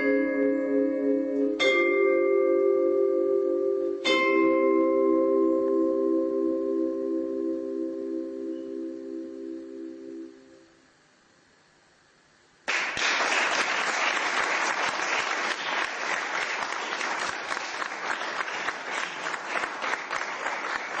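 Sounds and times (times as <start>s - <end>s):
mallet keyboard chord ringing: 0.0s - 10.7s
audience applause: 12.7s - 21.0s.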